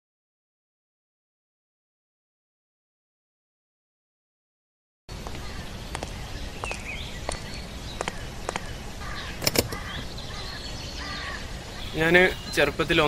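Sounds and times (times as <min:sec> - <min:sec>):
outdoor traffic rumble: 0:05.1 - 0:13.0.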